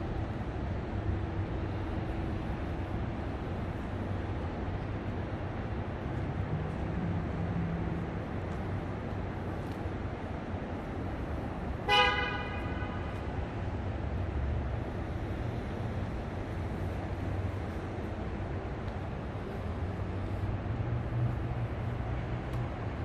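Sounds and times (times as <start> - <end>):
city traffic rumble: 0.0 - 23.0
car horn toot: 11.9 - 13.1.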